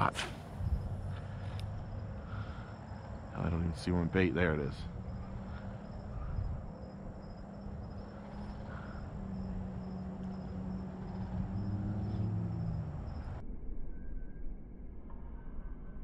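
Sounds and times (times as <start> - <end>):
insects chirping: 0.0 - 13.4
wind rumble on microphone: 0.2 - 13.9.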